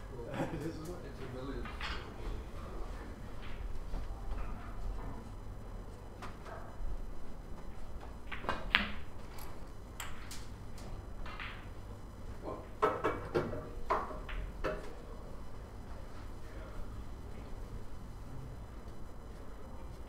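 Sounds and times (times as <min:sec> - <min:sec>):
snooker balls clicking: 0:07.6 - 0:11.8, 0:12.7 - 0:15.0.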